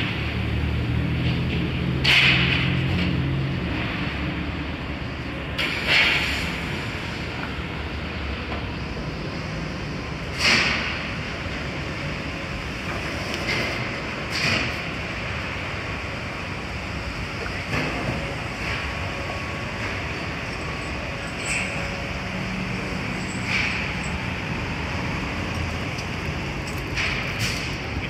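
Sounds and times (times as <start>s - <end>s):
city street traffic: 0.0s - 28.0s
heavy engine low hum: 0.0s - 28.0s
loud rushes of hiss: 5.6s - 7.3s.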